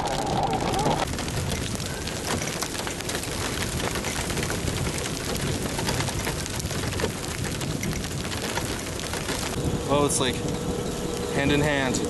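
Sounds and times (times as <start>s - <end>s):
low rumble: 0.0s - 12.0s
steady rain patter: 0.0s - 12.0s.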